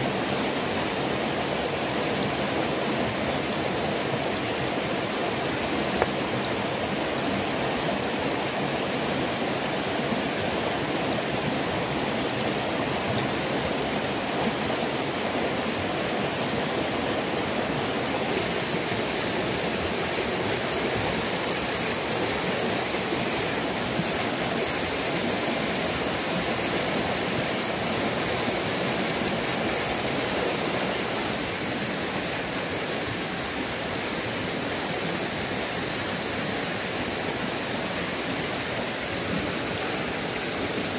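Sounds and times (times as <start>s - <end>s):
stream rushing over rocks: 0.0s - 40.9s.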